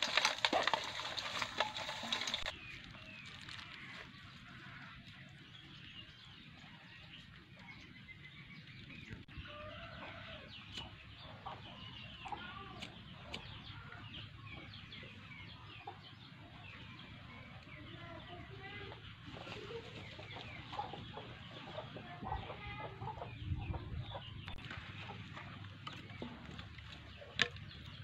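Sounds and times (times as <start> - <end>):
chickens clucking: 9.1 - 27.5.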